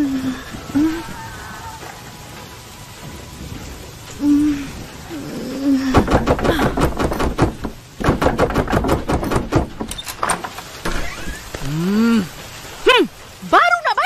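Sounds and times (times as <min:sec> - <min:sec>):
person humming: 0:00.0 - 0:01.3, 0:04.2 - 0:06.8, 0:11.6 - 0:12.4
knocking on wooden door: 0:06.0 - 0:09.9.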